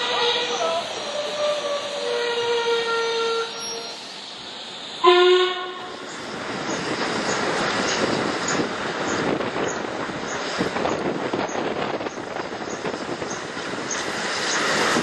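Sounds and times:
steam locomotive whistle: 0:00.0 - 0:04.1, 0:05.0 - 0:06.1
train running rushing noise: 0:00.0 - 0:15.0.

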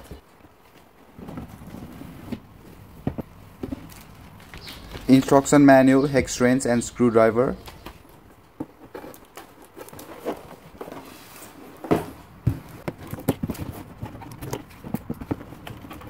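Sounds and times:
cardboard box handled: 0:08.6 - 0:16.0.

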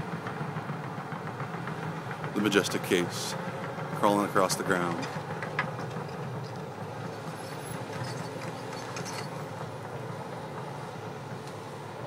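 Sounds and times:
excavator diesel engine droning: 0:00.0 - 0:12.0
faint metal clanks: 0:04.9 - 0:09.6.

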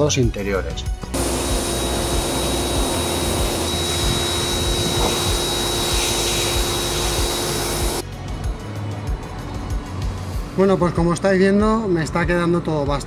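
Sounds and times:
pressure washer motor hum and whine: 0:01.1 - 0:08.0
water jet spraying on plastic: 0:01.2 - 0:08.0.

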